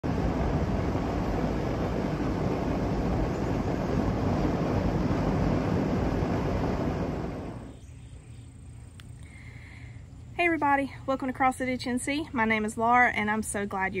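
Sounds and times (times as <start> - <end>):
wind blowing across microphone: 0.0 - 8.0.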